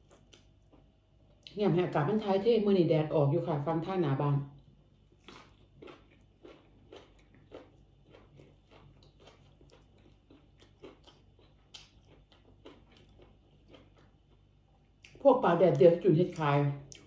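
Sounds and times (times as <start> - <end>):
crunchy chewing: 5.0 - 15.2.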